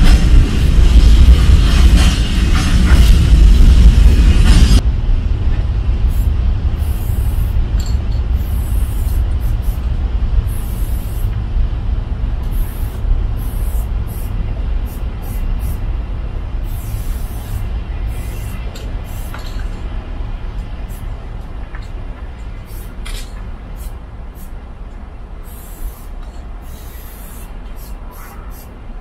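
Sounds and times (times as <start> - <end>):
loud broad noise: 0.0 - 15.9
low rumble: 0.0 - 22.5
spray can hissing in spurts: 6.1 - 11.4, 12.4 - 15.8, 16.6 - 19.7, 20.8 - 21.1, 22.6 - 24.5, 25.4 - 28.8.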